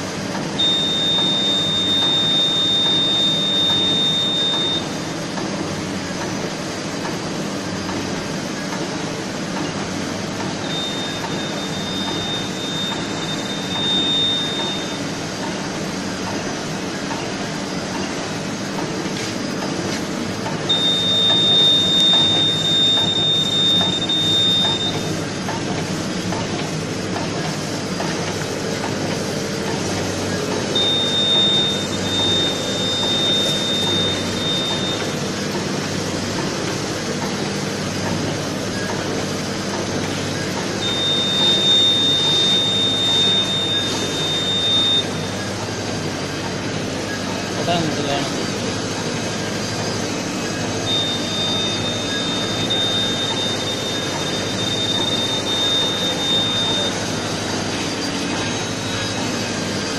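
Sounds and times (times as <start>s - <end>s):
high steady tone: 0.6s - 5.0s, 20.7s - 25.2s, 30.6s - 35.2s, 40.8s - 45.3s, 50.8s - 59.6s.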